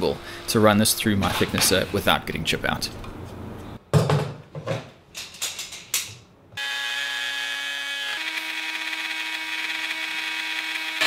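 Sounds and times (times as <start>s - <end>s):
electric router whining: 6.6s - 11.0s.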